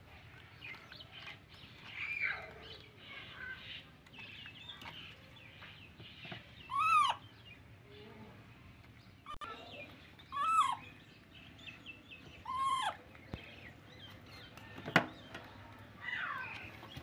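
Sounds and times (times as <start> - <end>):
animal chirps and squeaks: 6.6 - 7.3, 9.3 - 11.0, 12.3 - 13.1.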